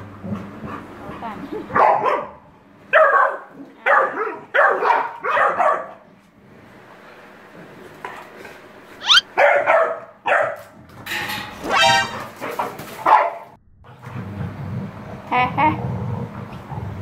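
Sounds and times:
dogs barking: 1.7 - 6.1, 9.0 - 10.7, 13.0 - 13.6
dog yelping: 9.0 - 10.5, 11.6 - 12.3.

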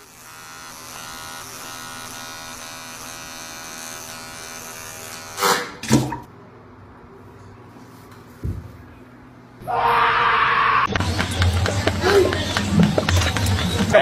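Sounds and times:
electric trimmer buzzing: 0.0 - 5.6, 10.9 - 14.0.

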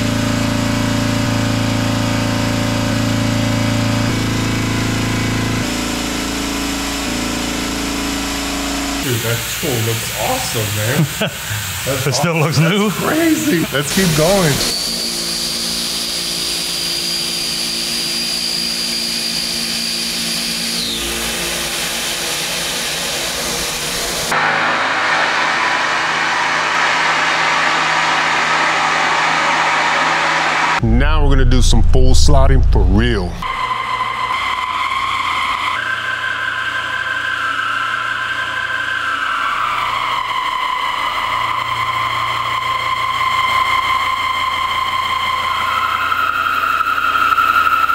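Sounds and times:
high spindle whine: 0.0 - 47.9
milling machine cutting metal: 0.2 - 26.2.

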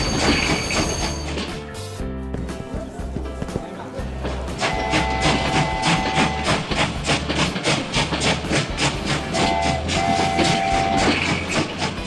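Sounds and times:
wheels clacking on rail joints: 0.0 - 1.6, 3.4 - 12.0
electric train horn: 4.6 - 6.8, 9.3 - 11.4.

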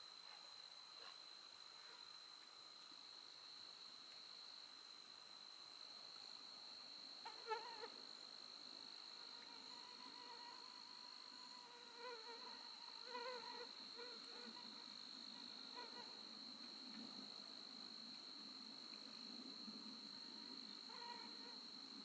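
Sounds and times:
mosquito whine: 7.2 - 7.9, 9.3 - 14.8, 20.9 - 21.6
high-pitched insect trill: 8.9 - 16.5.

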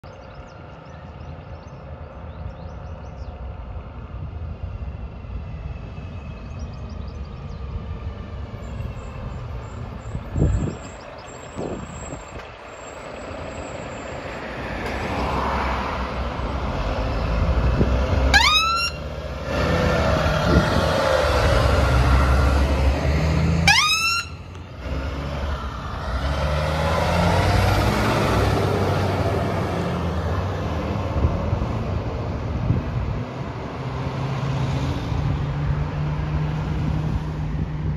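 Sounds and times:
diesel truck engines: 0.0 - 37.9
siren whoops: 18.3 - 19.0, 23.6 - 24.4.

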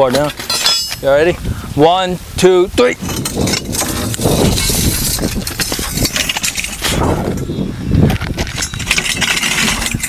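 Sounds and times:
steel safe scraping on concrete: 3.0 - 7.5, 8.3 - 10.0.

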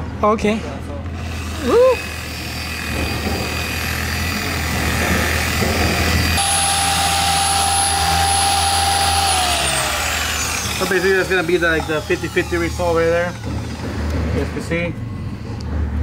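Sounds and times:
electric polisher motor whine: 1.2 - 14.2
higher whine: 6.2 - 13.9.

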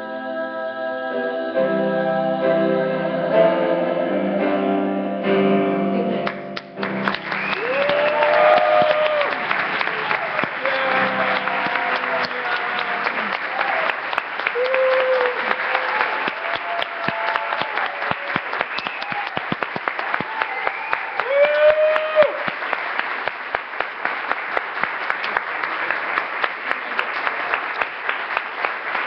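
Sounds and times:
audience applauding: 6.3 - 29.0.

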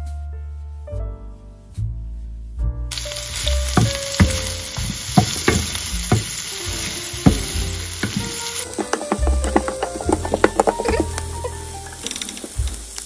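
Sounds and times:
onions sizzling in a frying pan: 2.9 - 13.0
wooden spoon scraping a pan: 2.9 - 13.0.

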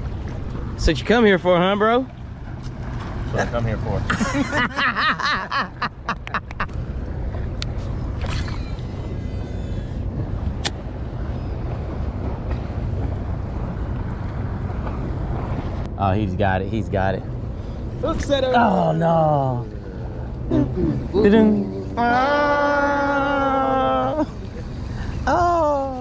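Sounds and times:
wind rumble on microphone: 0.0 - 4.4, 6.4 - 18.6.

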